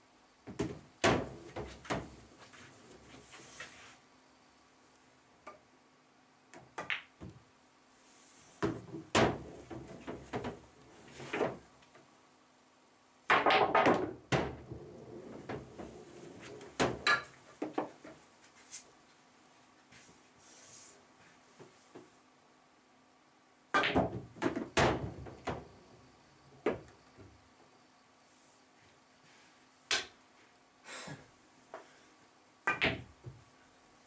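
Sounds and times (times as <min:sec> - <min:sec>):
pool balls clicking together: 0:32.7 - 0:33.1.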